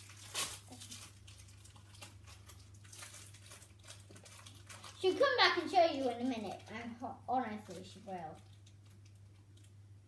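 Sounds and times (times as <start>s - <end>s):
sharp crackle: 0.0s - 6.8s
plastic wrapper crinkling: 0.0s - 10.0s.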